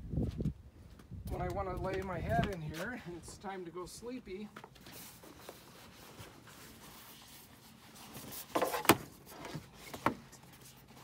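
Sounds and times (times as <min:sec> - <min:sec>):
rustle and scrape: 0:00.2 - 0:03.5, 0:04.5 - 0:11.0
soft handling sounds: 0:04.3 - 0:11.0.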